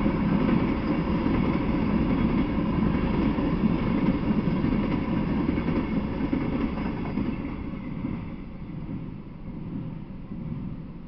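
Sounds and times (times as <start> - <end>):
train wheels rumbling on track: 0.0 - 11.0.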